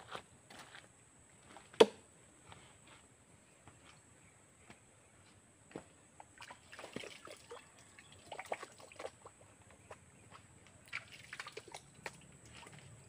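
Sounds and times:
hands splashing water: 10.8 - 12.8
water drips: 10.8 - 12.8.

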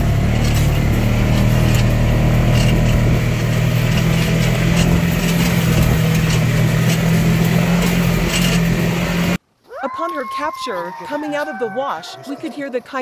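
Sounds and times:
vehicle engine running: 0.0 - 9.4
knocks and rattles over bumps: 0.0 - 13.0.

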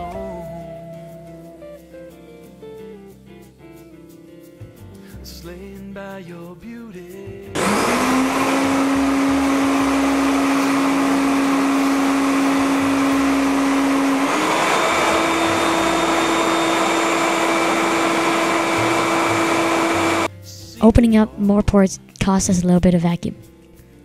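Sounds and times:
shop vac motor whine: 7.6 - 20.3.

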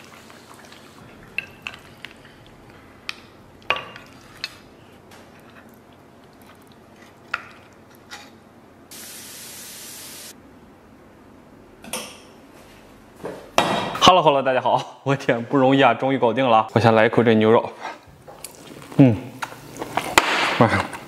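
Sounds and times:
steady hiss: 8.9 - 10.4.

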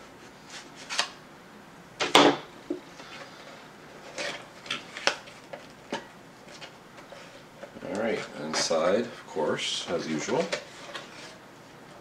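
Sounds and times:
cardboard rustling: 9.8 - 11.4.

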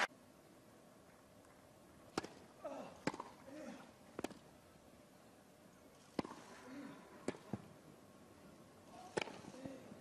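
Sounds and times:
tennis ball knocks: 3.0 - 3.4, 6.2 - 6.5.

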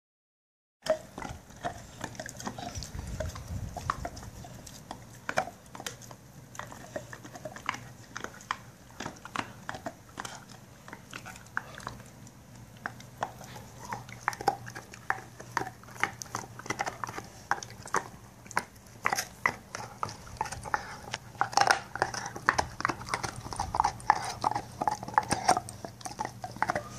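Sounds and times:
dog gnawing a bone: 0.8 - 26.9.

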